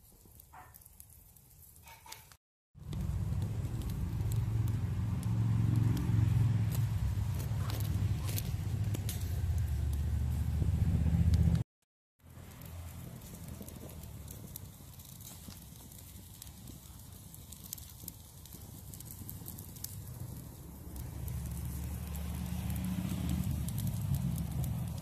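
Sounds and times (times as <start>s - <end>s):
wood fire crackling: 0.0s - 25.0s
low rumble: 2.8s - 11.7s, 19.1s - 25.0s.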